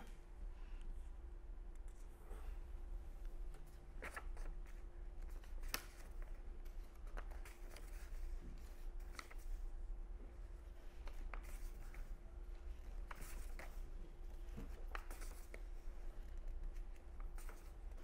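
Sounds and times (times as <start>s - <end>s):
low background hum: 0.0s - 18.0s
paper rustling: 3.5s - 9.6s, 10.6s - 18.0s.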